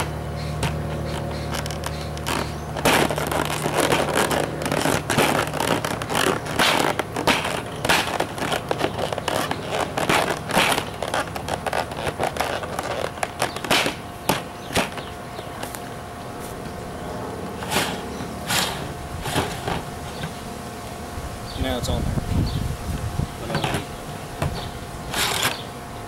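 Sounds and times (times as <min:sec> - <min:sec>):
plastic cracking and scraping: 0:00.0 - 0:15.9, 0:17.6 - 0:20.4.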